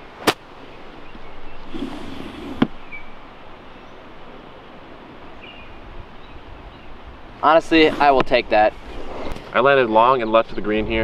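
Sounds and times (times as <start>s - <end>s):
low outdoor background: 0.0s - 11.0s
golf ball struck by club: 0.2s - 0.5s.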